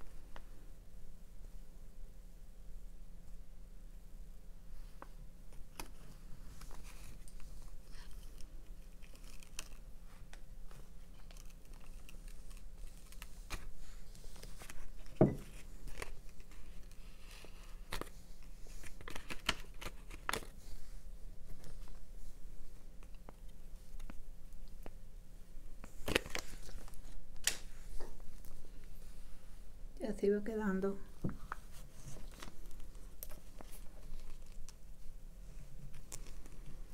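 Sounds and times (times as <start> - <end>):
paper rustling and crinkling: 4.9 - 24.2, 25.8 - 28.8, 31.2 - 36.9.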